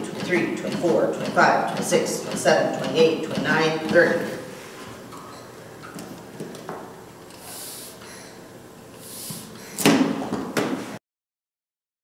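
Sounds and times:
bag-valve-mask air hiss: 7.4s - 8.3s, 9.0s - 9.9s.

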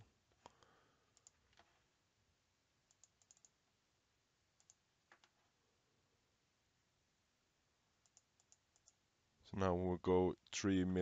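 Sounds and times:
computer mouse clicks: 1.1s - 1.7s, 2.9s - 3.6s, 4.6s - 5.4s, 8.0s - 9.0s.

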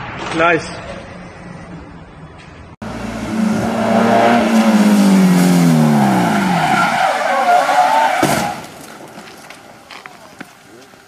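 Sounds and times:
tyres skidding and squealing: 0.0s - 11.0s
car engine running hard: 2.8s - 7.0s.

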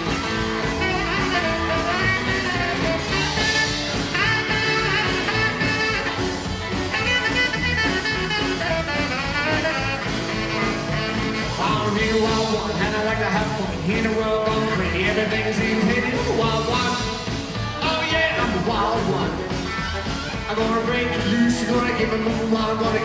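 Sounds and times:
saxophone solo: 0.0s - 12.5s, 19.4s - 20.7s
rockabilly band playing: 0.0s - 23.0s
slapped upright bass: 0.0s - 23.0s.

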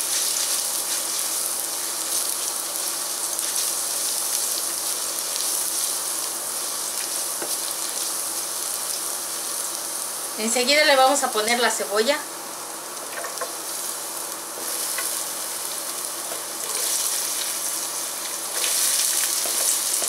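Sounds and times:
garlic sizzling in hot oil: 0.0s - 20.0s.

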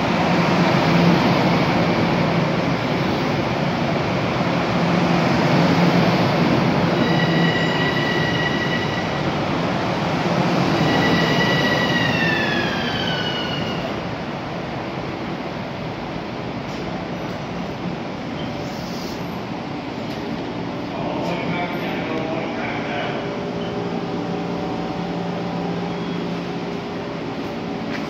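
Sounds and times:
train rolling rumble: 0.0s - 28.0s.

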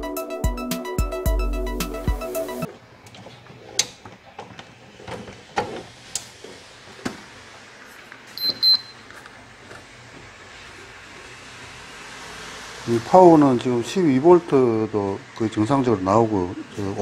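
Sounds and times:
short high tester beeps: 8.4s - 9.0s.

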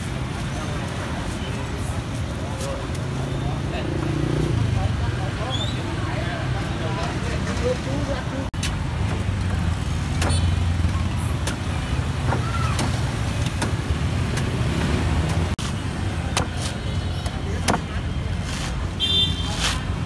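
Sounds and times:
street traffic rumble: 0.0s - 20.0s
cleaver chopping coconut husk: 11.3s - 15.6s, 16.3s - 17.9s.

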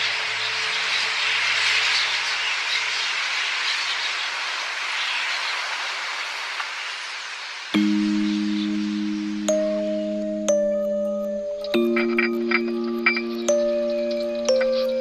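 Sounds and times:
small bird calls: 0.0s - 6.3s.

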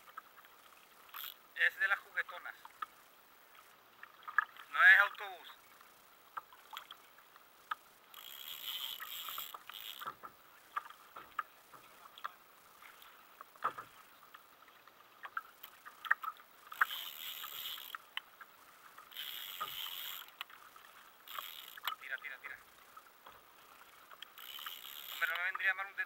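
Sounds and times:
fishing reel whirring: 0.6s - 1.5s, 7.5s - 10.3s, 15.5s - 25.6s
tackle clicking and knocking: 7.7s - 12.4s, 13.4s - 14.4s, 15.2s - 20.6s, 21.3s - 22.1s, 22.9s - 25.6s.

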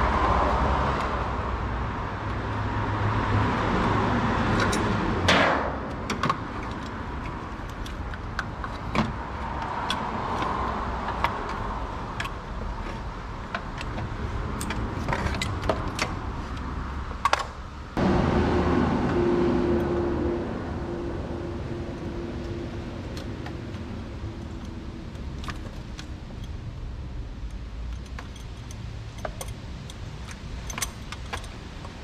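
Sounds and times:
louder steady hum: 18.0s - 24.2s
metallic clicks and clinks: 27.4s - 32.0s.

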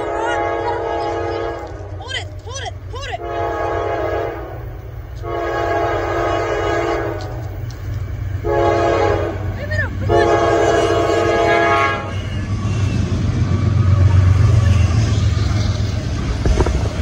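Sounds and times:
locomotive air horn blasts: 0.0s - 2.0s, 3.2s - 7.4s, 8.4s - 13.3s, 14.4s - 15.3s
low rumble of train: 0.0s - 17.0s.

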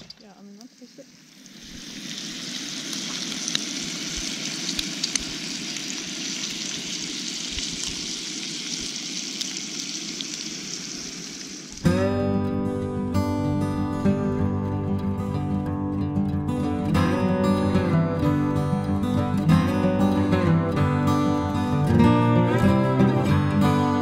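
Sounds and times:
bacon sizzling on griddle: 0.0s - 11.8s
fat popping and crackling: 0.0s - 11.9s.

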